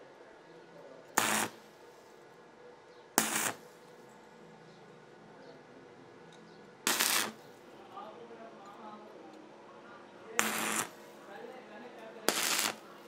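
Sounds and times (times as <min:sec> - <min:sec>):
welding arc crackle: 0:01.2 - 0:01.6, 0:03.2 - 0:03.7, 0:06.9 - 0:07.5, 0:10.4 - 0:11.0, 0:12.3 - 0:13.0.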